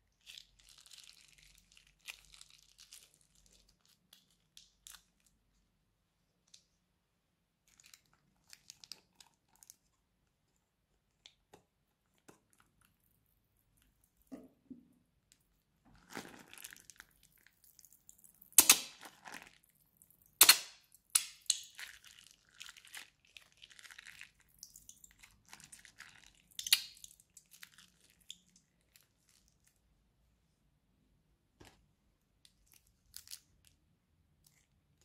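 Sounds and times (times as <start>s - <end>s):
slime crinkling and squishing: 0.0s - 5.7s, 7.5s - 14.4s, 15.2s - 30.0s, 31.6s - 35.0s
slime popping: 16.0s - 22.0s, 22.6s - 28.6s.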